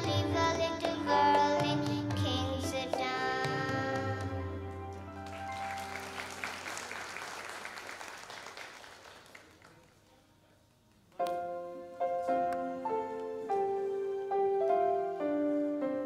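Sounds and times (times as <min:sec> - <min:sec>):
audience applause: 0:04.9 - 0:10.2.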